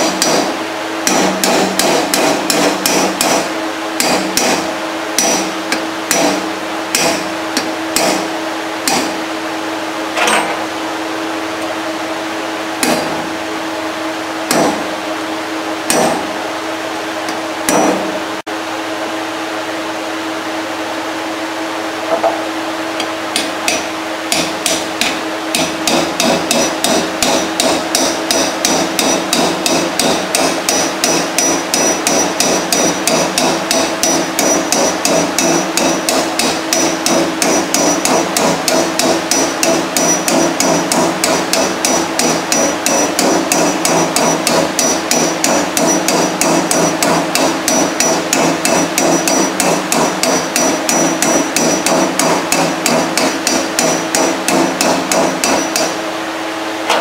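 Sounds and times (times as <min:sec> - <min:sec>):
steady hum: 0:00.0 - 0:57.0
hammer tapping on steel: 0:01.0 - 0:03.4, 0:04.0 - 0:04.6, 0:05.2 - 0:08.2, 0:08.8 - 0:09.1, 0:23.0 - 0:56.0.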